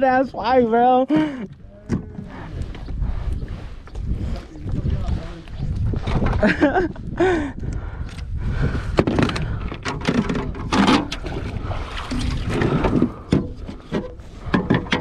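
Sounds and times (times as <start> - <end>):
steady low rumble: 1.4 - 9.9.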